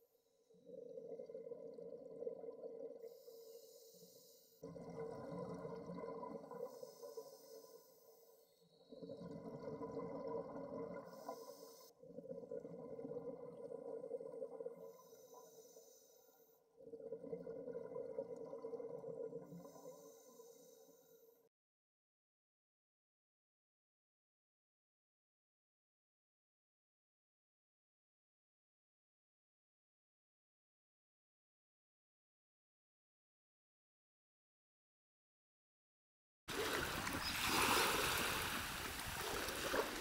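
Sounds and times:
bubbling exhaled breath underwater: 0.6s - 3.6s, 4.6s - 7.9s, 8.7s - 15.8s, 16.8s - 20.7s, 36.5s - 40.0s.

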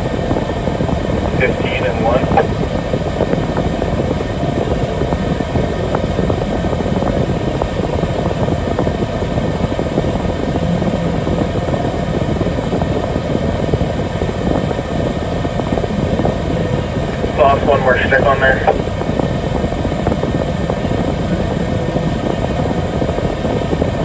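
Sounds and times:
engine drone inside vehicle cab: 0.0s - 24.0s.

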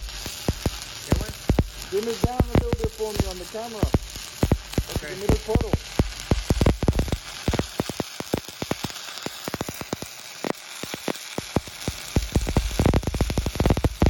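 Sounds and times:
welding arc crackling and popping: 0.0s - 14.0s.

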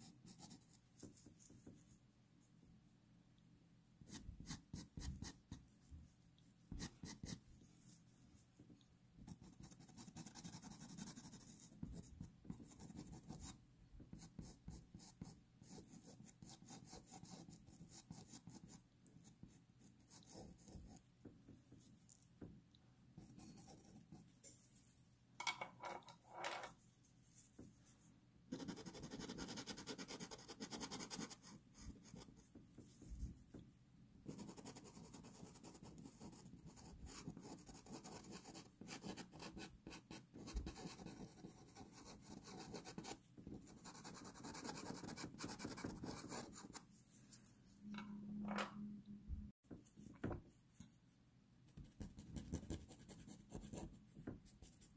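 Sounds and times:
pencil scratching on paper: 0.0s - 1.9s, 6.7s - 7.9s, 9.2s - 21.0s, 23.2s - 24.4s, 28.5s - 33.1s, 34.3s - 46.9s, 51.8s - 54.9s.

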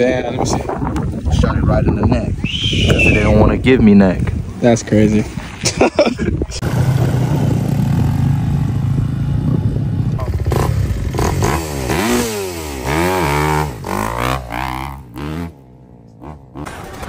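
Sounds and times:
dirt bike engines revving: 4.6s - 17.0s.

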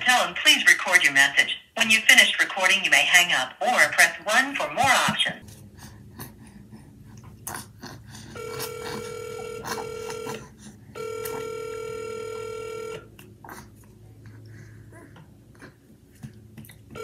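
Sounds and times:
telephone line tone: 8.4s - 10.4s, 11.0s - 13.1s.

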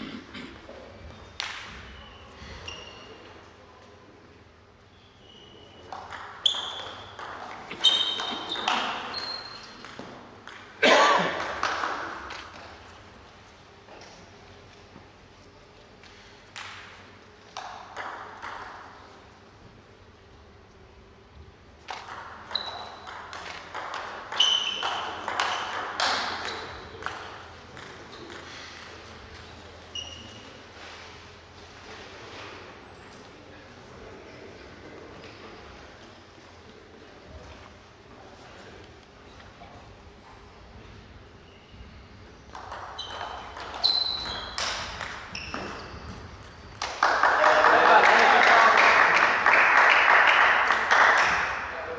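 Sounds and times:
table tennis ball hits: 1.4s - 1.9s, 5.8s - 12.9s, 16.5s - 19.1s, 21.9s - 30.2s, 42.5s - 47.4s, 50.5s - 51.7s.

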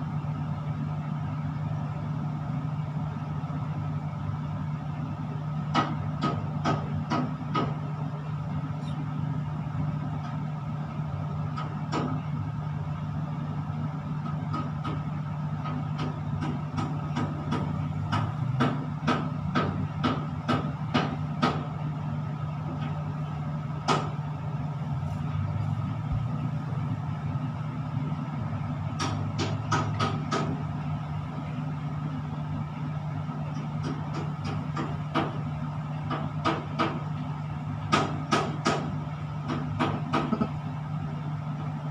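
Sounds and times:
low machinery hum: 0.0s - 41.9s
sharp clicks and knocks: 15.6s - 21.7s, 28.9s - 30.7s.

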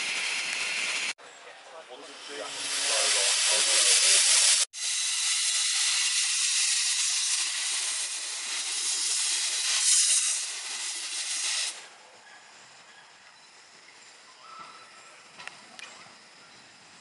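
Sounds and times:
steam locomotive hissing: 0.0s - 1.2s, 2.0s - 12.0s.

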